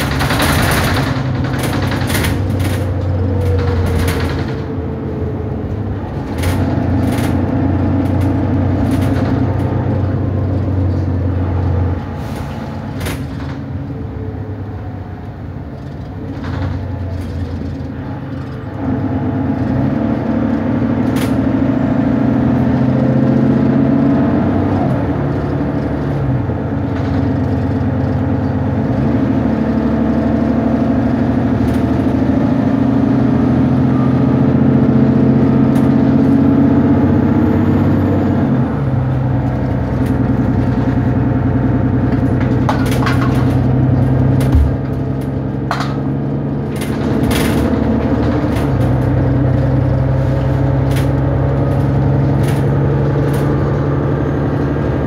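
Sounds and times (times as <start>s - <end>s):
bus body rattling: 0.0s - 55.0s
bus engine droning: 0.0s - 55.0s.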